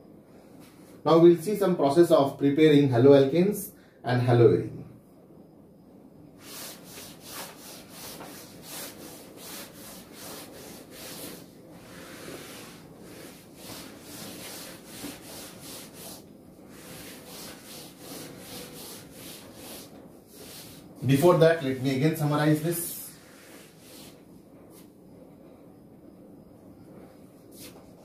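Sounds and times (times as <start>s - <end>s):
duster rubbing chalkboard: 6.4s - 24.9s, 27.5s - 28.0s.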